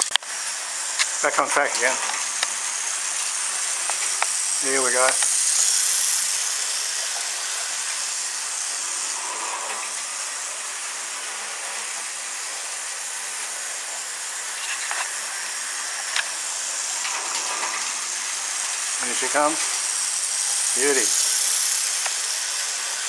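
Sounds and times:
model train wheels and motor hissing: 0:00.0 - 0:23.0
wheels clicking over rail joints: 0:00.0 - 0:23.0.

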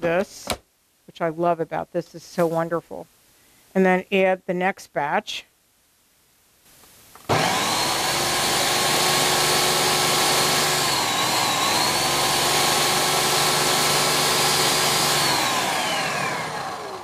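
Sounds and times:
blender motor whine: 0:07.3 - 0:17.0.

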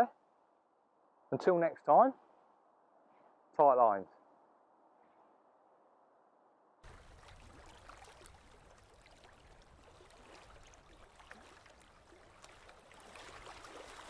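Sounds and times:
water lapping and gurgling: 0:06.8 - 0:14.0.

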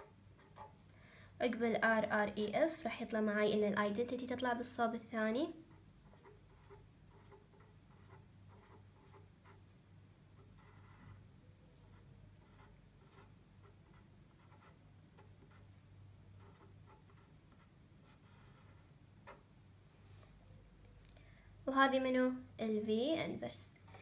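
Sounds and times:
pen scratching on paper: 0:00.0 - 0:00.8, 0:05.7 - 0:09.8, 0:10.4 - 0:19.7.

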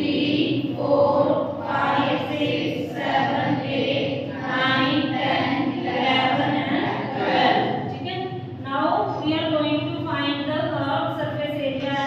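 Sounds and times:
voices chanting drawn-out syllables: 0:00.0 - 0:08.0.

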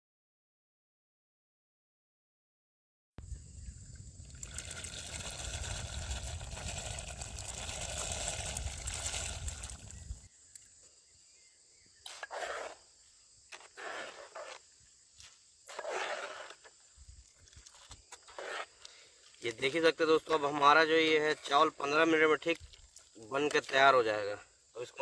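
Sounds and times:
water boiling in a pot: 0:04.0 - 0:10.3
rice pouring into water: 0:04.2 - 0:10.3.

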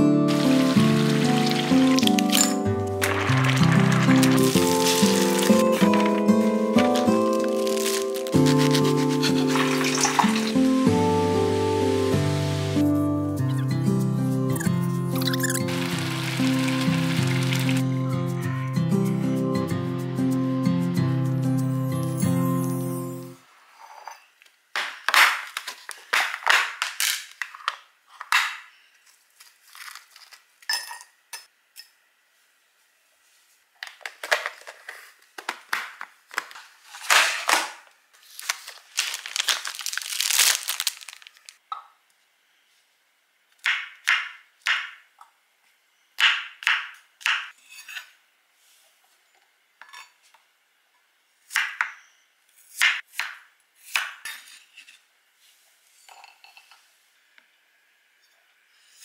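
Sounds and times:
plastic packaging crinkling: 0:00.3 - 0:10.8, 0:15.6 - 0:17.8, 0:29.3 - 0:30.5, 0:34.3 - 0:41.6.

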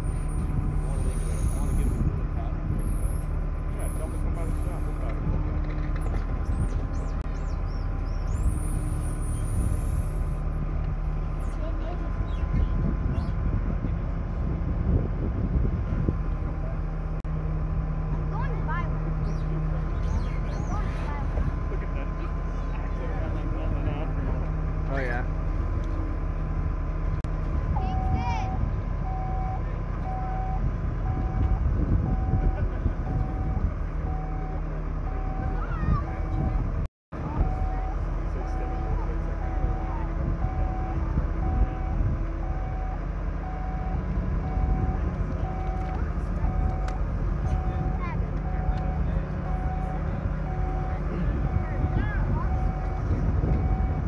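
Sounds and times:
engine rumbling: 0:00.0 - 0:54.0
high squeaking chirps: 0:06.0 - 0:11.5.

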